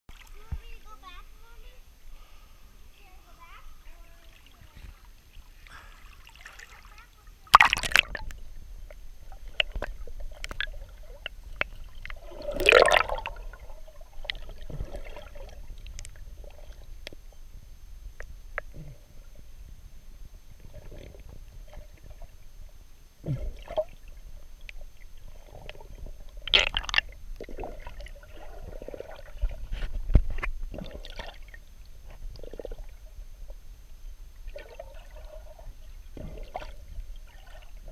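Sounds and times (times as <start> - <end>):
water sloshing and gurgling: 0.1 - 1.7, 3.0 - 37.9
short water splashes: 4.1 - 8.4, 9.5 - 16.1, 26.5 - 31.6.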